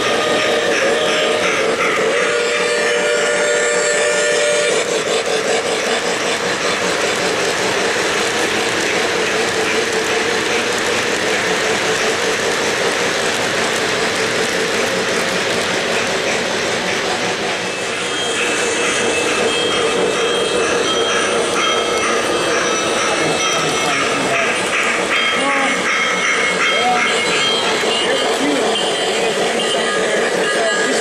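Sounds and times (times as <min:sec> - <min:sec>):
model train wheels clattering: 0:00.0 - 0:17.5.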